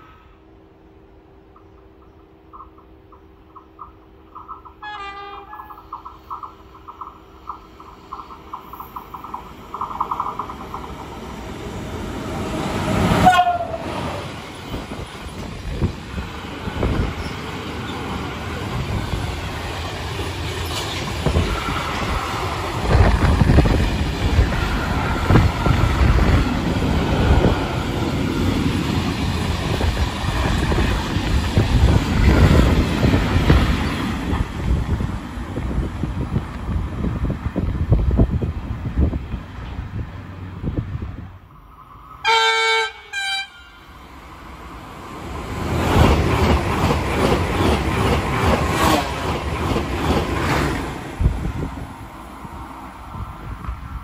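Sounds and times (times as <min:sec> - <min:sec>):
electric locomotive rushing past: 0:00.0 - 0:54.0
freight train rumbling and clattering: 0:01.3 - 0:41.5, 0:44.6 - 0:54.0
train horn: 0:04.8 - 0:05.8, 0:13.1 - 0:14.2, 0:42.2 - 0:44.0.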